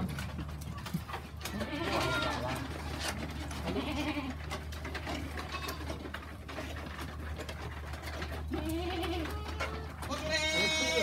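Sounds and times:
goat bleat: 0:01.4 - 0:06.1, 0:08.4 - 0:11.0.

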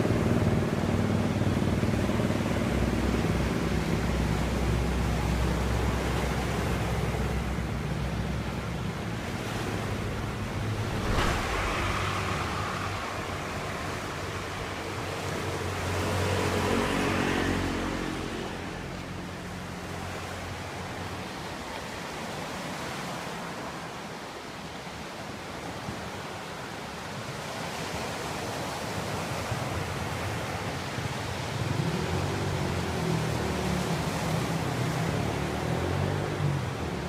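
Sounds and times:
steady outdoor rush: 0:07.3 - 0:20.8
vehicle engine passing: 0:10.4 - 0:15.0
engine approaching: 0:10.4 - 0:17.8.

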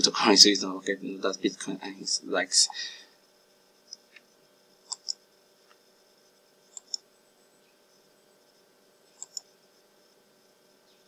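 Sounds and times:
faint hum: 0:00.0 - 0:11.0
computer mouse clicking: 0:04.8 - 0:05.8, 0:06.7 - 0:07.0, 0:09.1 - 0:09.5.

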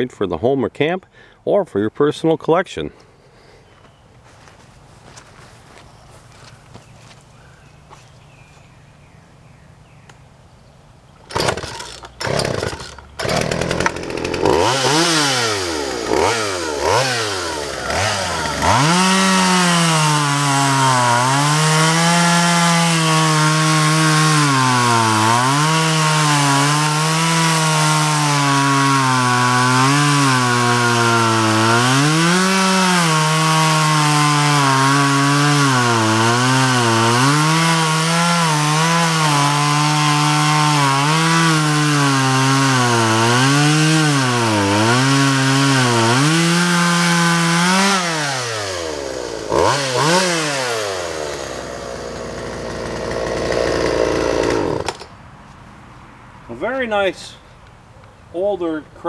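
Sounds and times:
person speaking: 0:00.0 - 0:03.0
chainsaw starter pulls: 0:11.3 - 0:21.5, 0:49.4 - 0:55.1
chainsaw revving: 0:11.3 - 0:55.1
chainsaw cutting into log: 0:11.3 - 0:55.2.

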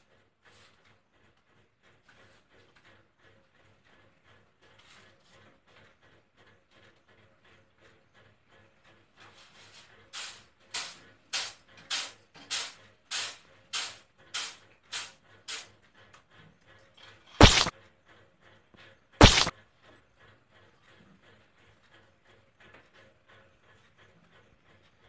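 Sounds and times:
cartoon footsteps scuffing: 0:17.4 - 0:17.7, 0:19.2 - 0:19.5
loud sudden thuds: 0:17.4 - 0:17.7, 0:19.2 - 0:19.5.

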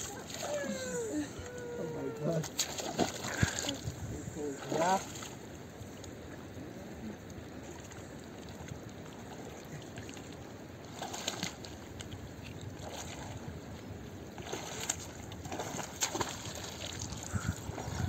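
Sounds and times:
water splashes and knocks: 0:02.3 - 0:04.0, 0:04.6 - 0:05.4, 0:07.7 - 0:13.6, 0:14.4 - 0:18.0.

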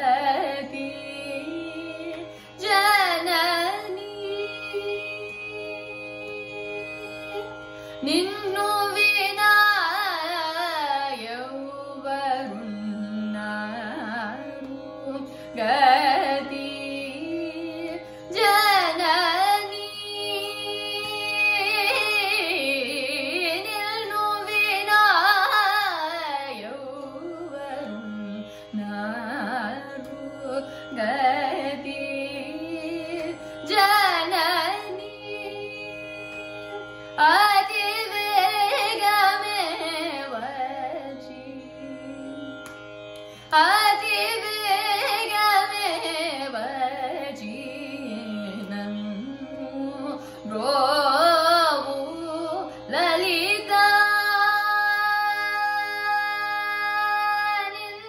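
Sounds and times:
woman singing gliding phrases: 0:08.0 - 0:36.3, 0:43.5 - 0:58.0.

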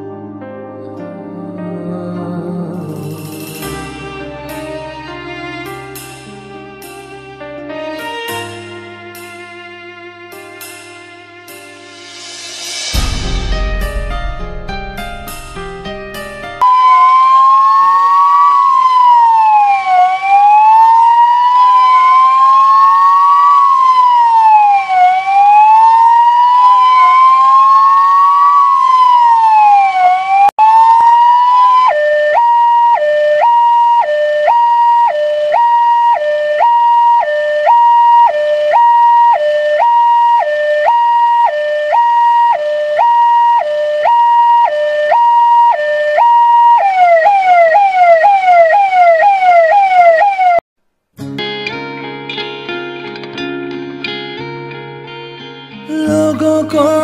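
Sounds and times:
emergency vehicle siren: 0:16.6 - 0:50.6.

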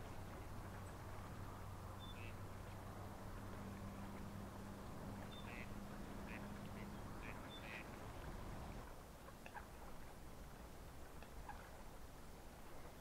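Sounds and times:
coots and ducks calling: 0:02.0 - 0:02.4, 0:05.2 - 0:08.0.

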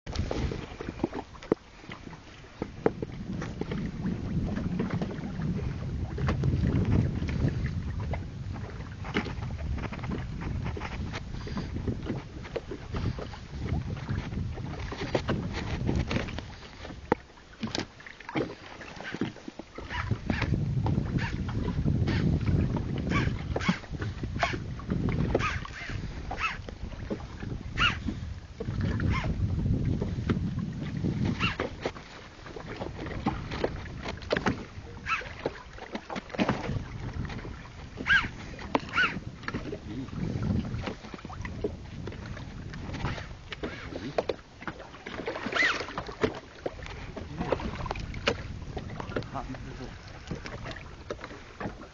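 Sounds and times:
low boat rumble: 0:00.0 - 0:51.9
water slapping against hull: 0:00.1 - 0:51.9
wind on microphone: 0:00.1 - 0:51.9
knocks and clatter on board: 0:09.1 - 0:25.6, 0:32.6 - 0:39.7, 0:47.2 - 0:49.5
short high squeaks: 0:31.4 - 0:31.6, 0:38.1 - 0:38.3, 0:38.9 - 0:39.2, 0:45.6 - 0:45.9.

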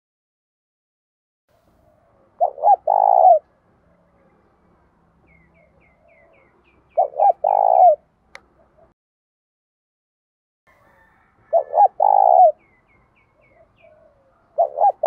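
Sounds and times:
dove cooing: 0:01.8 - 0:03.5, 0:05.4 - 0:08.9, 0:11.4 - 0:12.6, 0:13.4 - 0:15.0.

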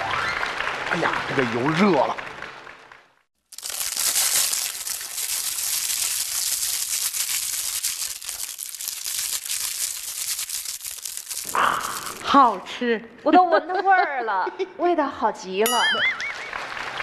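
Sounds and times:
crumpled plastic crackling: 0:03.4 - 0:12.4.

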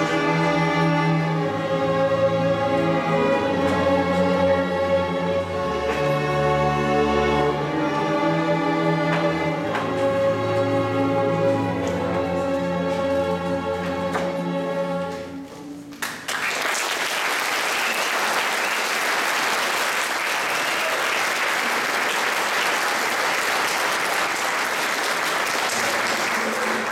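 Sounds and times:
audience applause: 0:16.0 - 0:26.9.

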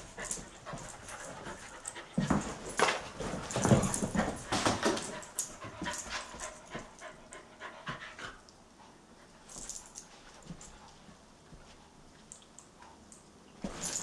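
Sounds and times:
dogs panting: 0:00.0 - 0:11.0.

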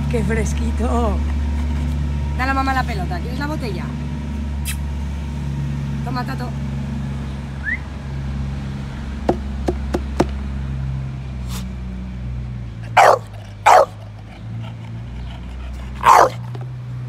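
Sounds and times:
dog barking: 0:12.8 - 0:16.7.

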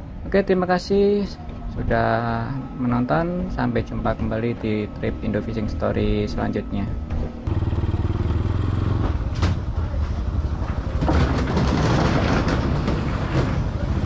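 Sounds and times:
small motorcycle engine running: 0:07.5 - 0:09.4.

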